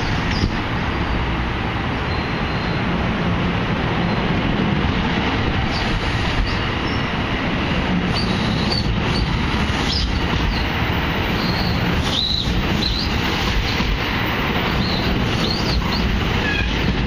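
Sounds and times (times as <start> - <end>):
wheels rumbling on rail: 0.0 - 17.0
high wheel squeals: 11.3 - 13.8, 14.7 - 17.0.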